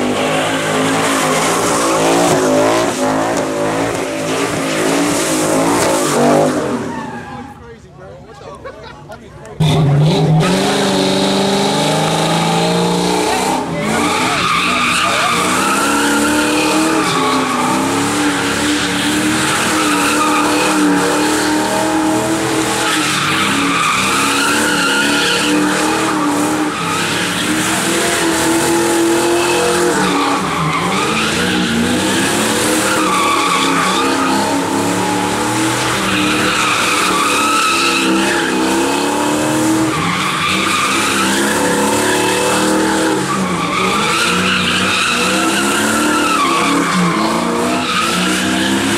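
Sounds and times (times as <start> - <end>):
car engine at high revs: 0.0 - 7.2, 9.5 - 48.9
tyres squealing: 13.4 - 48.9.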